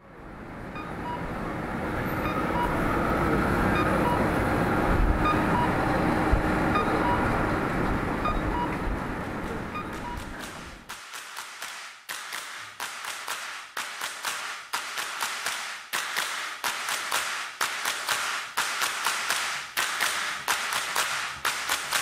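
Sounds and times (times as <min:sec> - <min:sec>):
clap-like percussion hits: 0:10.0 - 0:22.0.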